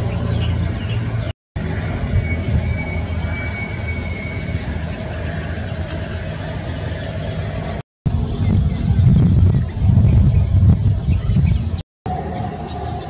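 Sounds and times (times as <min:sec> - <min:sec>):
low engine-like rumble: 0:00.0 - 0:13.0
faint high whistle: 0:00.3 - 0:04.8.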